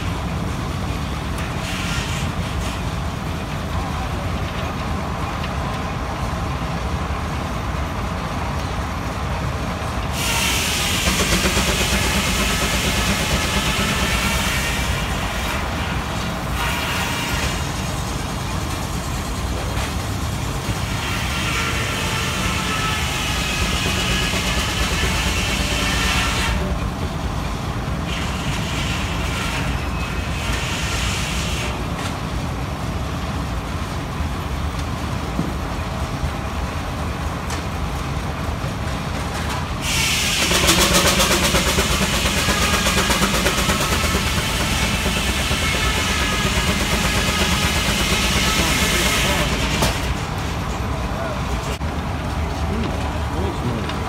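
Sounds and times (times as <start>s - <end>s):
steam hiss: 10.1s - 26.7s, 39.8s - 50.2s.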